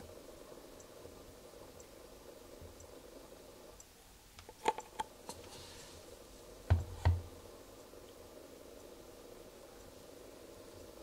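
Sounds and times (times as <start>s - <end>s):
dull thumps: 6.7s - 7.3s.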